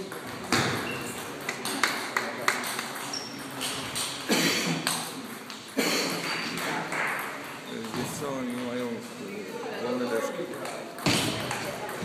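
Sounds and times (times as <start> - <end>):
table tennis ball bouncing: 0.0 - 8.9, 10.6 - 12.0
table tennis ball hits: 10.9 - 12.0.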